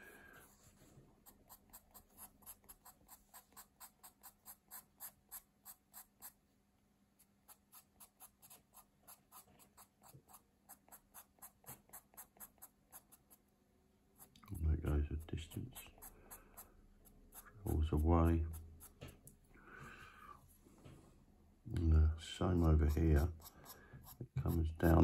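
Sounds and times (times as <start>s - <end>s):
pencil scratching on paper: 0.4s - 6.4s, 7.2s - 13.5s, 14.2s - 19.2s, 22.5s - 25.0s.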